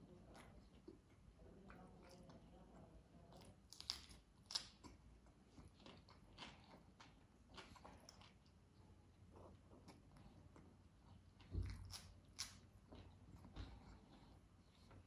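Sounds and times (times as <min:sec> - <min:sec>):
chewing raw cucumber: 0:00.0 - 0:15.0.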